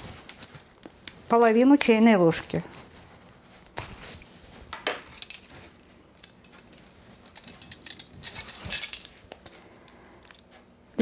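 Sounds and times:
metal spoons clinking and rattling: 0:01.4 - 0:02.2, 0:05.0 - 0:09.2.

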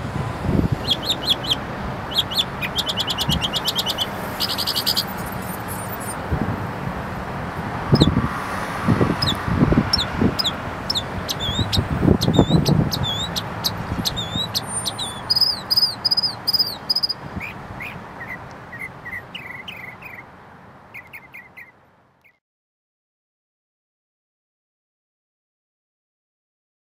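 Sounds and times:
mockingbird singing: 0:00.7 - 0:06.2, 0:08.0 - 0:08.2, 0:09.1 - 0:20.3, 0:20.9 - 0:22.4.

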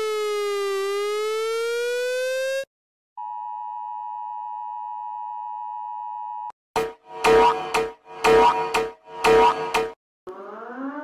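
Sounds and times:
buzzy siren-like alert tone: 0:00.0 - 0:02.6, 0:06.8 - 0:11.0
steady alert tone: 0:06.8 - 0:10.0.

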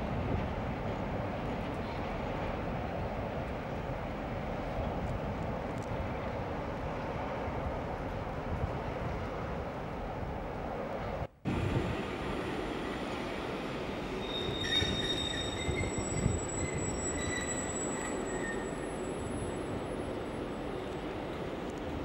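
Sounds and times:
train rumbling: 0:00.0 - 0:22.0
train wheels squealing: 0:14.0 - 0:20.9.

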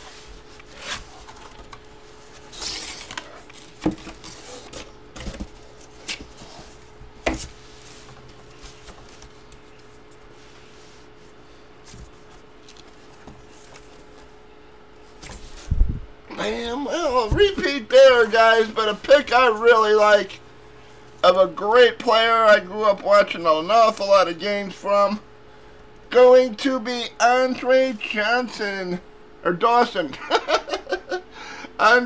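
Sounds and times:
cardboard rubbing and sliding: 0:00.0 - 0:09.5
faint steady hum: 0:00.0 - 0:32.0.

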